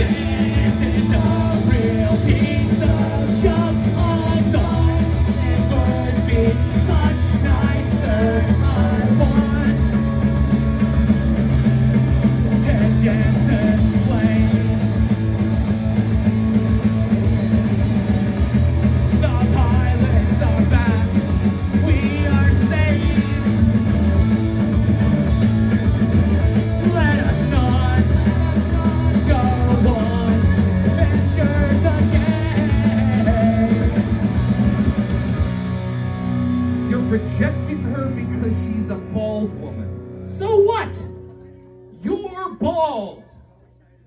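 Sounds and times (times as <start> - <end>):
person singing: 0.0 - 10.1, 12.5 - 14.8, 26.8 - 34.2
punk rock band playing live: 0.0 - 41.4.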